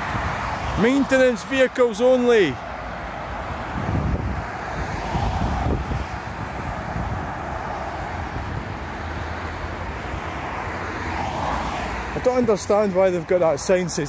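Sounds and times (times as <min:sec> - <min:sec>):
motorway traffic rushing: 0:00.0 - 0:14.0
wind buffeting microphone: 0:02.6 - 0:10.8
car passing at speed: 0:02.6 - 0:12.3.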